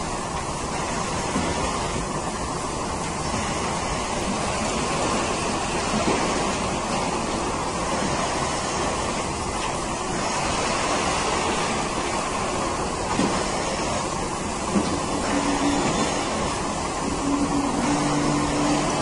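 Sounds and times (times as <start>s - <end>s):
milking machinery running: 9.6s - 19.0s.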